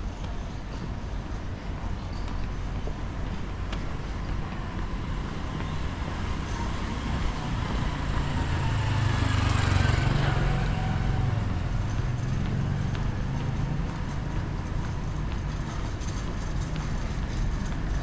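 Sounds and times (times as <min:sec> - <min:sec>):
city street noise: 0:00.0 - 0:18.0
vehicle driving past: 0:07.3 - 0:14.4.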